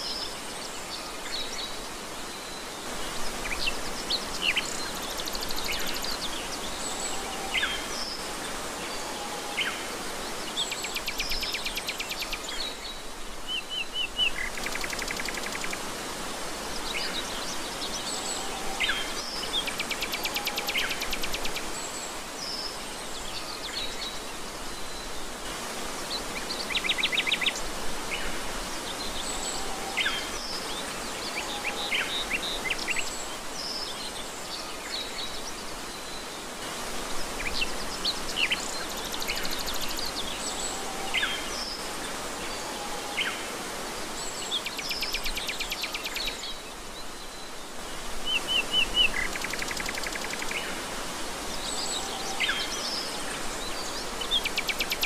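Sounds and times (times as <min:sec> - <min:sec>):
flowing water: 0:00.0 - 0:55.0.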